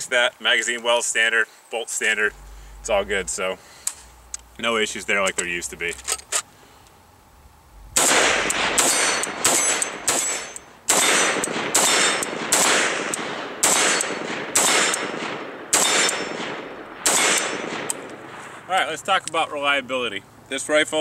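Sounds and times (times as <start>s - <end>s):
rifle shots echoing: 7.9s - 18.7s.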